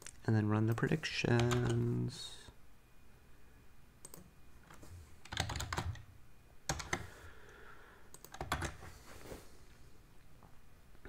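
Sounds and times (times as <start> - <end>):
computer keyboard typing: 0.7 - 1.9, 4.0 - 6.1, 6.7 - 7.2, 8.1 - 8.9.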